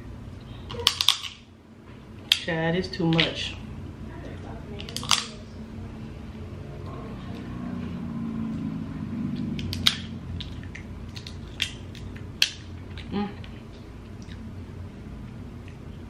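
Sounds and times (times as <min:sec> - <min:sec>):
crab shell cracking: 0:04.8 - 0:05.4, 0:09.5 - 0:14.5.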